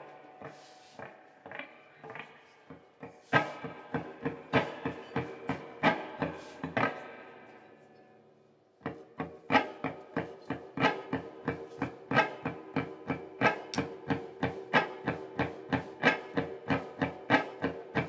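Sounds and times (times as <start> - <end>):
electric guitar strumming chords: 3.2 - 7.2.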